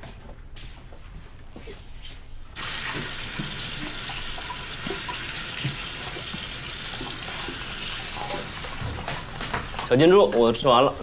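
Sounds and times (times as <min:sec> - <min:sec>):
tap running into sink: 0:02.6 - 0:10.5
knocks and splashes in colander: 0:02.8 - 0:09.9.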